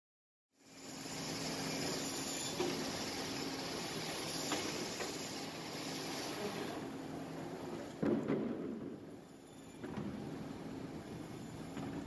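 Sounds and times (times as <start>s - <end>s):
band saw running: 0.6s - 7.0s.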